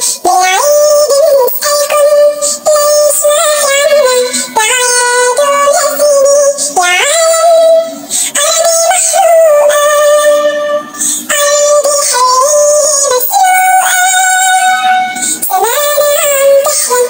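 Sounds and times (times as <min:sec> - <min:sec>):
high-pitched voice singing: 0:00.0 - 0:17.0
music: 0:00.1 - 0:17.0.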